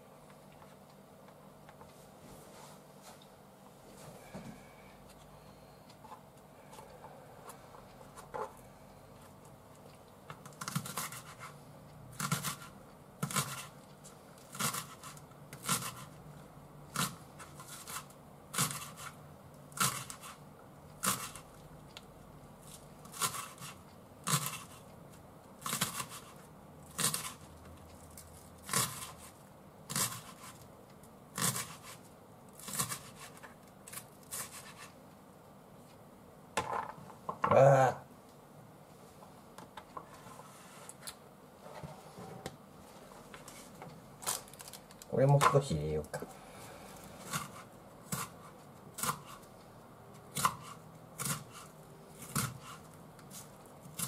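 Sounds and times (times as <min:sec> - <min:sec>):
knife slicing onion on cutting board: 0:10.4 - 0:13.8, 0:14.5 - 0:16.2, 0:16.9 - 0:19.2, 0:19.8 - 0:20.4, 0:21.0 - 0:21.5, 0:22.7 - 0:24.8, 0:25.6 - 0:27.5, 0:28.6 - 0:30.6, 0:31.3 - 0:32.0, 0:32.6 - 0:35.0, 0:47.2 - 0:49.5, 0:50.1 - 0:54.0.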